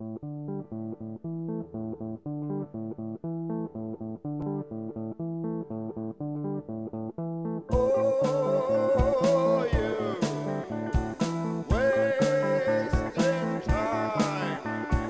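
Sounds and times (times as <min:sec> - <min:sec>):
plucked guitar notes: 0:00.0 - 0:15.0
bass line: 0:07.7 - 0:15.0.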